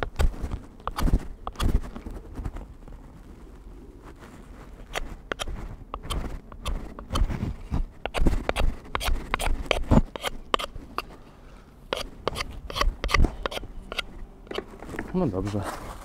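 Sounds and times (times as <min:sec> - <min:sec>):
knife scraping wooden handle: 0:00.0 - 0:02.0, 0:04.8 - 0:11.2, 0:11.9 - 0:14.7.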